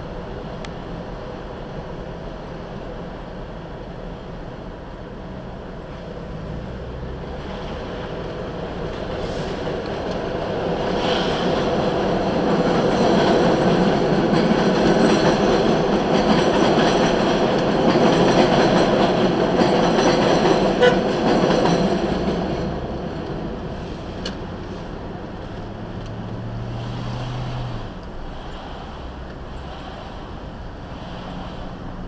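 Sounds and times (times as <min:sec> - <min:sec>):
elevated train on steel structure: 0:00.0 - 0:32.0.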